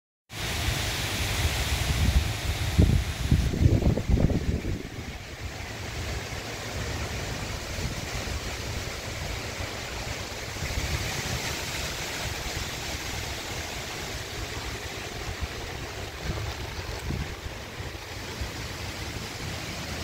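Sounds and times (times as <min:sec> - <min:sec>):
steady rain falling: 0:00.3 - 0:20.0
wind rumble on microphone: 0:01.3 - 0:20.0.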